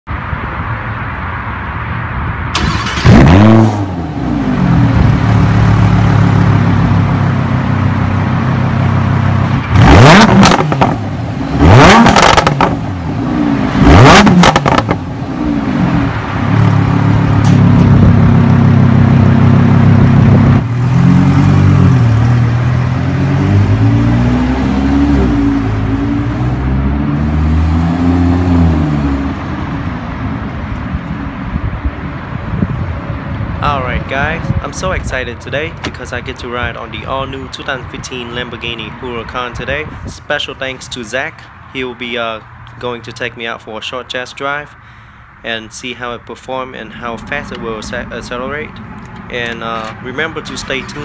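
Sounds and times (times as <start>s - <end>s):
car pulling away: 2.5s - 33.5s
sports car exhaust idling and revving: 3.0s - 39.3s.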